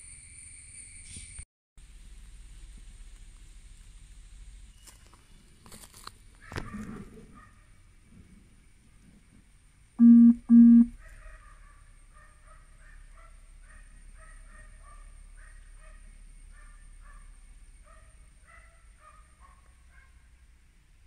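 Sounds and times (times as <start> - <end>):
short loud horn beeps: 10.0 - 10.9.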